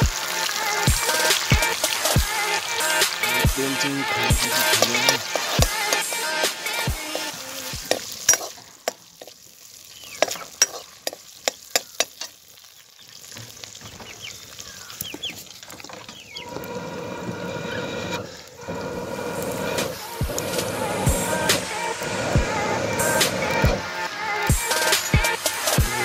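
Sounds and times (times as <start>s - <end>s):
background music: 0.0s - 8.5s, 19.4s - 26.0s
onions sizzling in oil: 0.0s - 16.4s, 18.3s - 26.0s
metal ladle scraping a pan: 1.1s - 9.4s, 10.1s - 12.4s
steady rushing noise: 18.1s - 26.0s.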